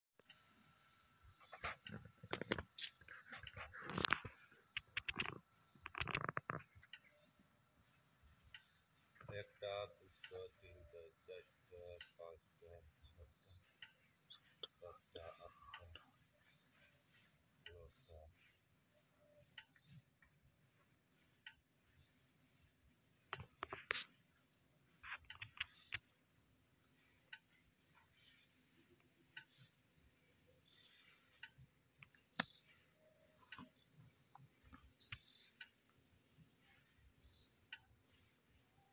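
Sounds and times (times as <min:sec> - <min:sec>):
insect chorus droning: 0:00.2 - 0:38.9
sharp knocks and clicks: 0:01.5 - 0:07.1, 0:25.0 - 0:26.1, 0:32.0 - 0:32.6.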